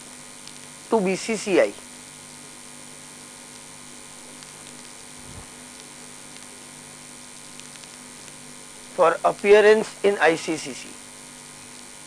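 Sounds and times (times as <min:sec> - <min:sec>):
electrical mains hum with hiss: 0:00.0 - 0:12.0
faint low thump: 0:05.2 - 0:05.5.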